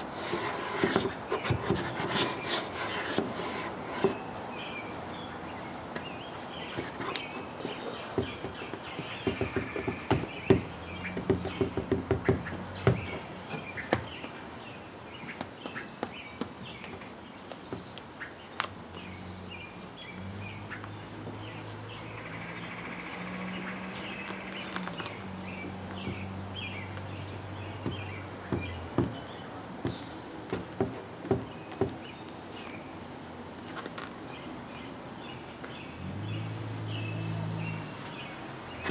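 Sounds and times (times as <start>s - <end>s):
small birds chirping: 0.0s - 38.9s
sharp clicks and knocks: 6.0s - 14.4s.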